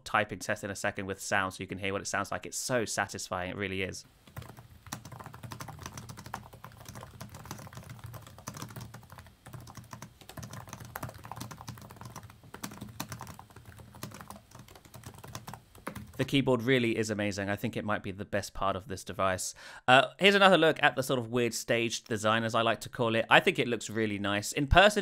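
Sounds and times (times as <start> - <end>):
laptop keyboard typing: 4.3 - 16.3.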